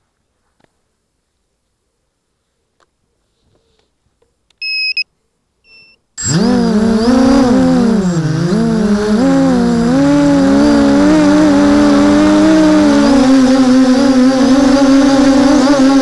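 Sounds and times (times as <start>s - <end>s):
short electronic beeps: 4.6s - 5.1s, 5.7s - 6.3s
drone motors and propellers: 6.2s - 16.0s.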